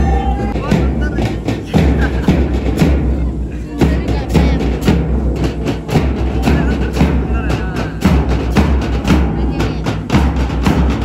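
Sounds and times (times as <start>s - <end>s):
snare and bass drums: 0.0s - 11.0s.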